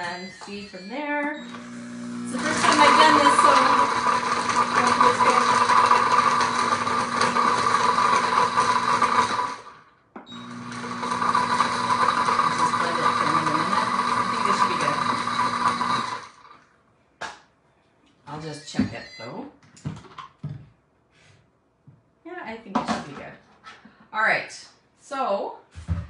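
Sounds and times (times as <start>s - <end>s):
blender crushing ice: 1.5s - 16.6s.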